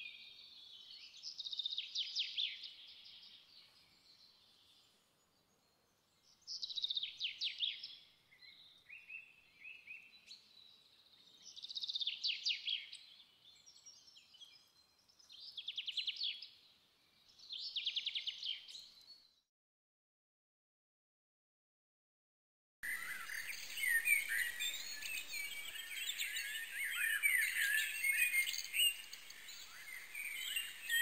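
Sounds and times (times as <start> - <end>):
bird trilled chirping: 22.8 - 31.0.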